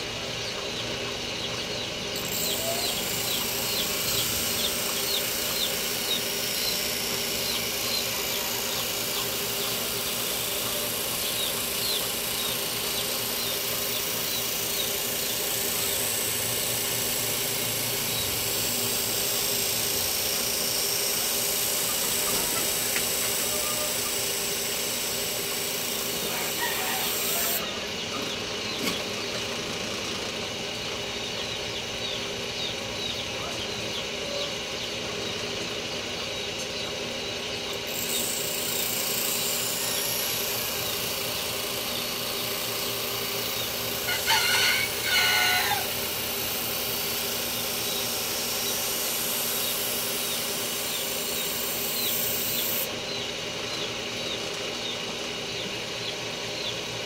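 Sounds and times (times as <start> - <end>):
machine hum: 0.0 - 57.0
rooster crowing: 26.2 - 27.8, 44.1 - 46.1.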